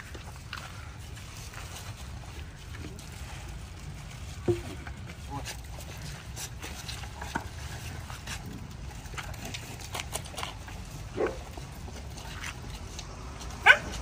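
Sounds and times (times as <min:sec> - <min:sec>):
animal eating: 0:00.0 - 0:14.0.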